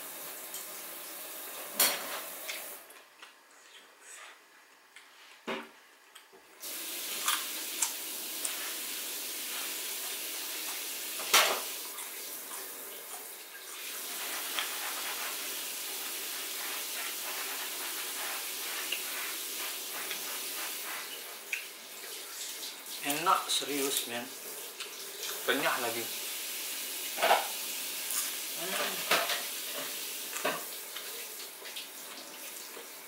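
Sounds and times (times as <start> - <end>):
steady rushing hiss: 13.8 - 21.5.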